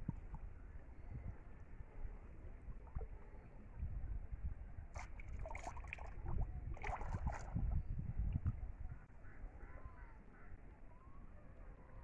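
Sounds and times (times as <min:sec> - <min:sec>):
pond water splashing: 0:04.9 - 0:07.8.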